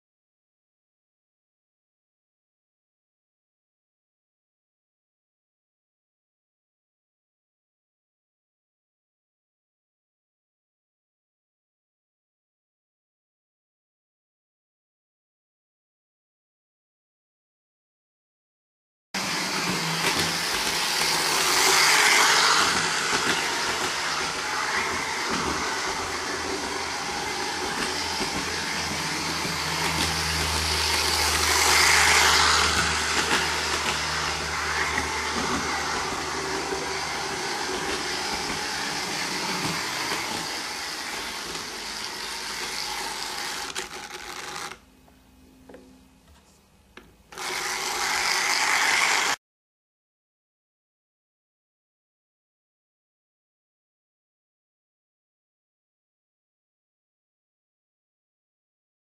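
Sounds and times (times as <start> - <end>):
model train motor whir: 19.2 - 44.8, 47.3 - 49.4.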